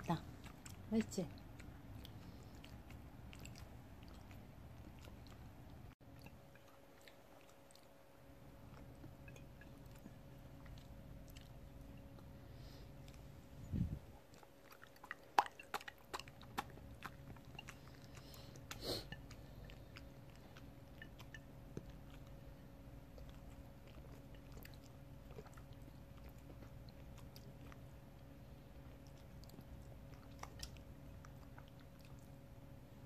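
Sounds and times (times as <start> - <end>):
faint steady hum: 0.0 - 33.0
wet mouth clicks and lip smacks: 14.3 - 18.8.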